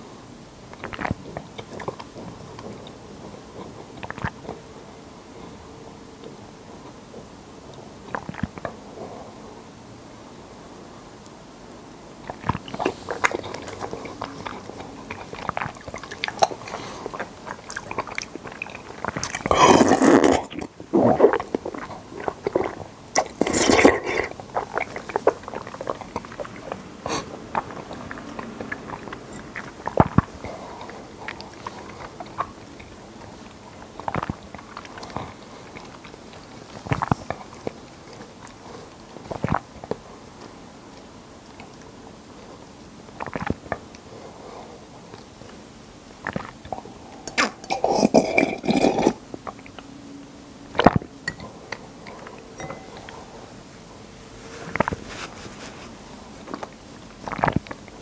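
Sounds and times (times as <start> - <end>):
person chewing and swallowing: 0.7 - 4.6, 8.1 - 8.8, 12.2 - 41.9, 43.2 - 44.1, 46.2 - 49.9, 50.7 - 53.4, 54.7 - 55.1, 56.4 - 58.0
person sipping: 12.2 - 39.6, 46.2 - 49.8, 50.8 - 53.6, 54.4 - 58.0.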